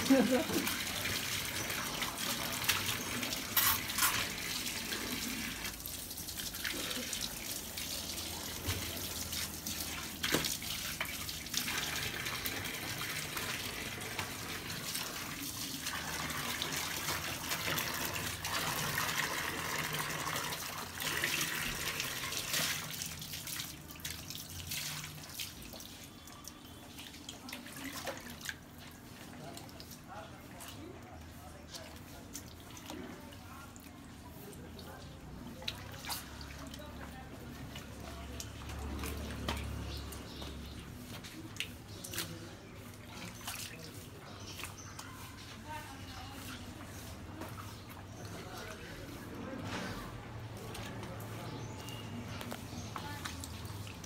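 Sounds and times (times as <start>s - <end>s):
tap water splashing into bucket: 0.0s - 29.9s, 35.5s - 45.0s.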